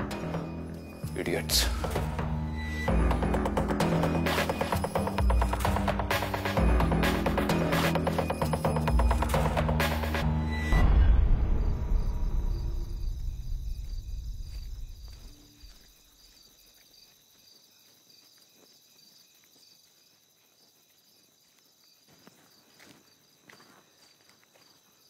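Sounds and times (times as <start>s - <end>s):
crickets chirping: 0.0s - 25.0s
deep low boom: 10.4s - 15.3s.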